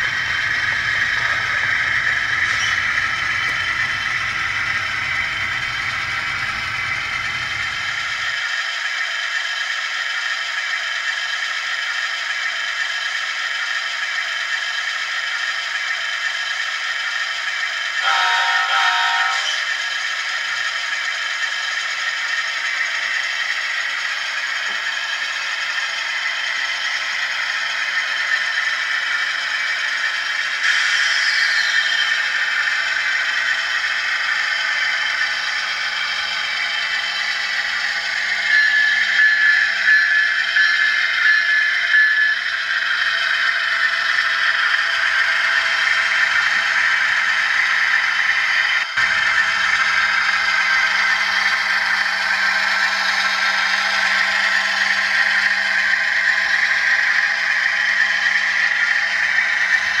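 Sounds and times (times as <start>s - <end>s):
model train wheels clattering: 0.0s - 9.0s
diesel engine sound from small speaker: 0.0s - 60.0s
pulsing high tone: 18.0s - 19.9s, 35.0s - 43.5s.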